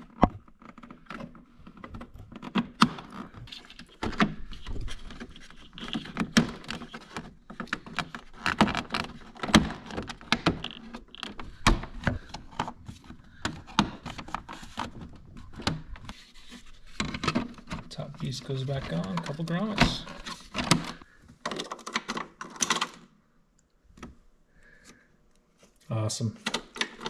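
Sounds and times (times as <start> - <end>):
plastic clicks and knocks: 0.0 - 16.2.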